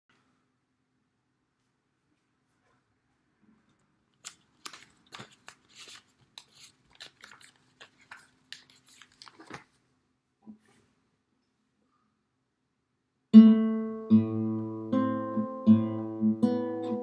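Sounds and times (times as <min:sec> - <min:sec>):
paper pages flipping: 0:04.2 - 0:09.8.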